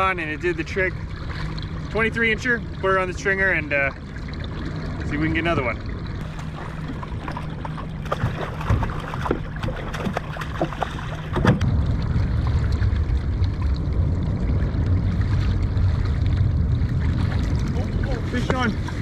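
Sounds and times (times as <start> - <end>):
water splashing: 0.0 - 19.0
wind buffeting microphone: 4.5 - 19.0.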